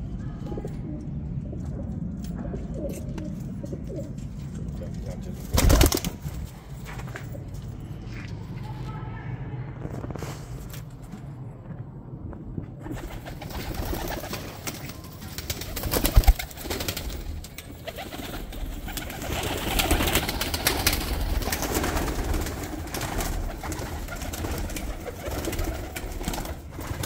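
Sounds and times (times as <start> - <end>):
pigeons cooing: 0.4 - 6.2
wings flapping and clattering: 1.6 - 7.6, 12.8 - 27.0.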